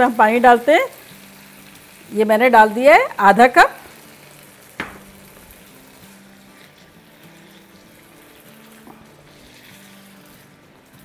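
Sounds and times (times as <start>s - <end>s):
sauce simmering and hissing: 0.0s - 11.0s
spatula tapping pan: 4.8s - 5.2s.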